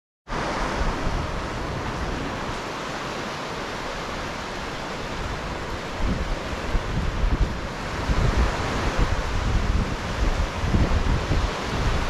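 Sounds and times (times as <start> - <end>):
waves washing on sandy beach: 0.3 - 12.0
wind gusts on microphone: 0.3 - 12.0.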